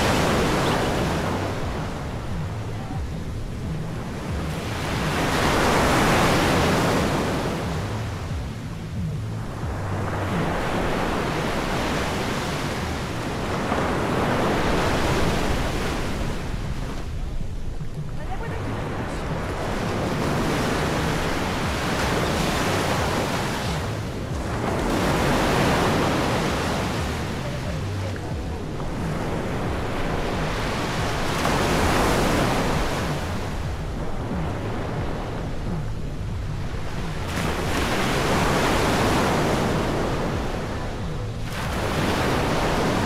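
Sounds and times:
ocean surf breaking on beach: 0:03.9 - 0:08.3, 0:09.4 - 0:17.2, 0:18.2 - 0:36.0, 0:36.7 - 0:43.0.

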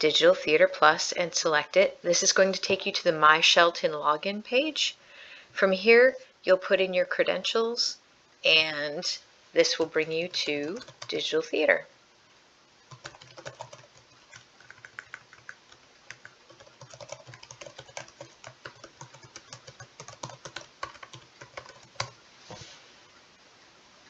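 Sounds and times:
typing on computer keyboard: 0:10.3 - 0:11.2, 0:12.9 - 0:22.2.

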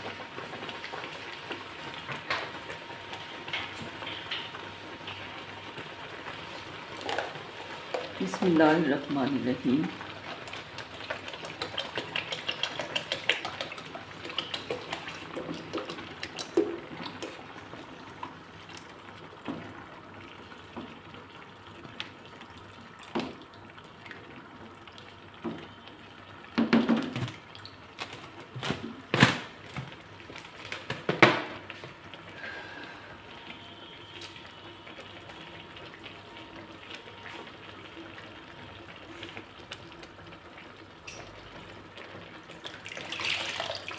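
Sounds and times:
milk pouring and splashing: 0:06.2 - 0:30.8, 0:41.6 - 0:43.9.

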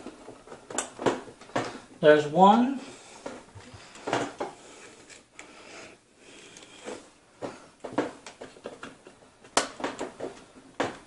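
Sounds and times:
small knocks and handling noise: 0:06.6 - 0:11.0.

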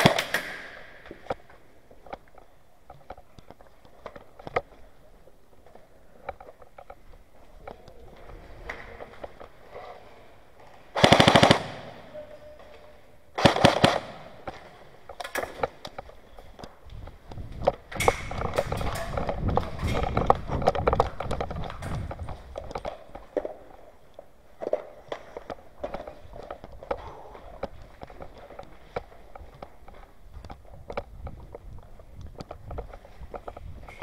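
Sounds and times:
scattered clicks and scuffling: 0:00.0 - 0:10.9, 0:13.7 - 0:34.0
airsoft gun full-auto bursts: 0:11.0 - 0:12.0, 0:13.4 - 0:14.4.

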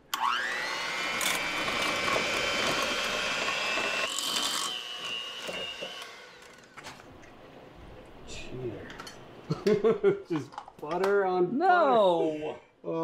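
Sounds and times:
electric hand mixer whining: 0:00.1 - 0:06.8.

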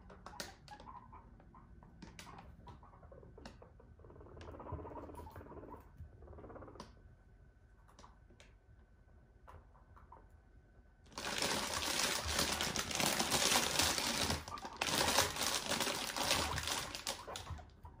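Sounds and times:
plastic bag crinkling: 0:11.1 - 0:17.6.

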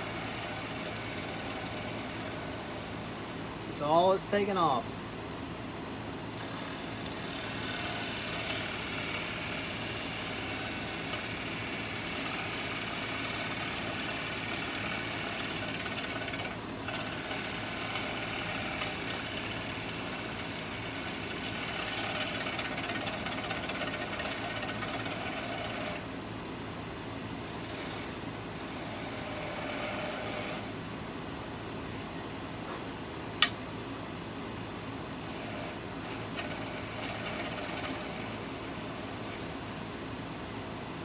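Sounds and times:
lathe humming: 0:00.0 - 0:04.8, 0:06.4 - 0:26.1, 0:27.6 - 0:30.8, 0:35.2 - 0:39.5
gouge cutting wood hiss: 0:06.4 - 0:16.1.

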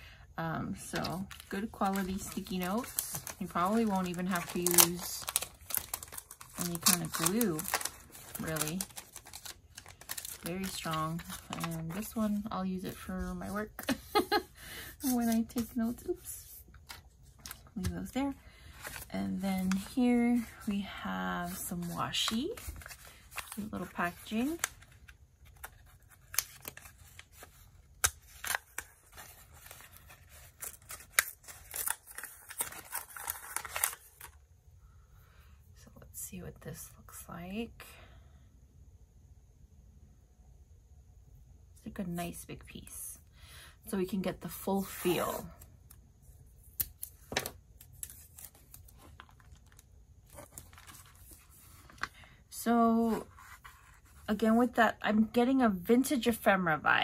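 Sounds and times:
paper packet crinkling: 0:00.8 - 0:12.2, 0:21.4 - 0:34.4, 0:46.8 - 0:52.2
tape crackling and tearing: 0:01.0 - 0:12.0, 0:22.1 - 0:34.4.

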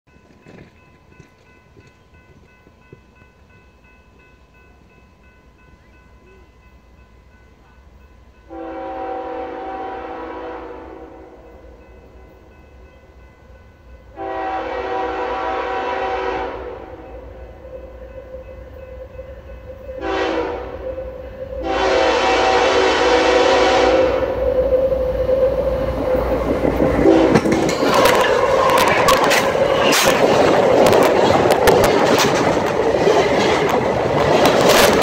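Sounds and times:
train rumbling: 0:00.1 - 0:35.0
locomotive air horn blasts: 0:08.5 - 0:11.7, 0:14.1 - 0:17.9, 0:20.0 - 0:21.0, 0:21.6 - 0:24.4, 0:27.0 - 0:28.2.

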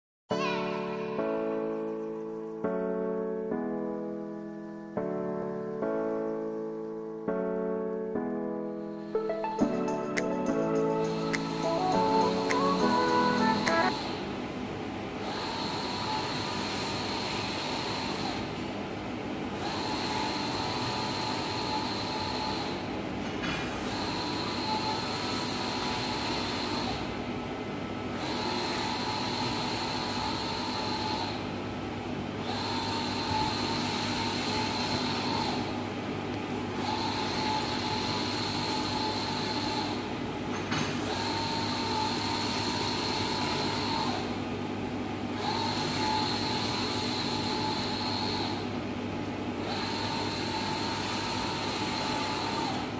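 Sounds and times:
printer hum: 0:08.8 - 0:52.9
printer carriage whirring: 0:10.8 - 0:52.9.

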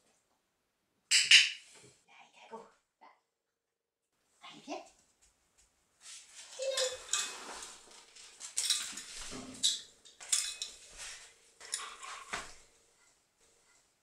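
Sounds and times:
dog claws on floor: 0:06.4 - 0:12.6.

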